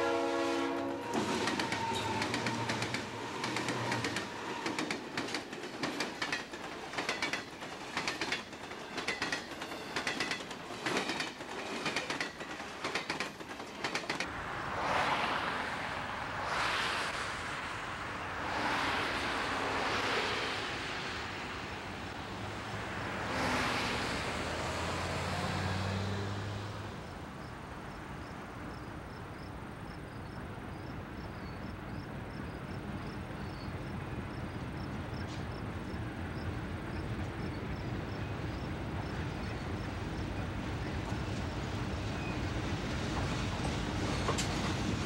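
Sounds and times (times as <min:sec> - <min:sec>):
loud whooshes: 0:14.3 - 0:21.7
insects chirping: 0:27.0 - 0:41.2.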